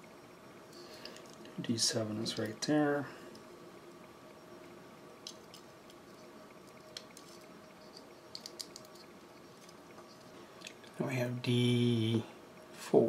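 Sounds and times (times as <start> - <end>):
faint steady hum: 0.0 - 13.0.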